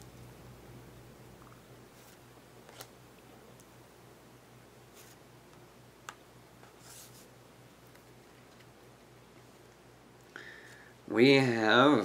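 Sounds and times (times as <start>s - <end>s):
steady low hum: 0.0s - 12.0s
cards swishing: 6.6s - 7.3s.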